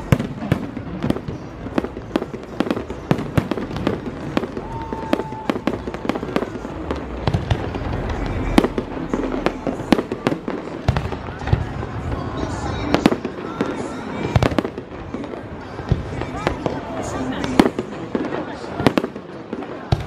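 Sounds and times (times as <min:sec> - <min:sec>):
fireworks bangs and cracks: 0:00.0 - 0:20.0
firework whistle: 0:04.4 - 0:06.5.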